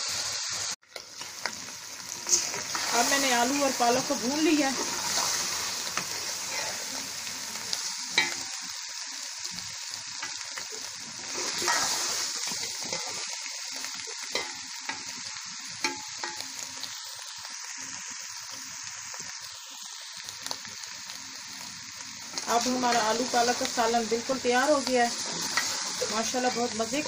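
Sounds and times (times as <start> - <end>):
vegetables sizzling in a pot: 0.0 - 27.0
metal spoon scraping a pot: 11.3 - 13.3.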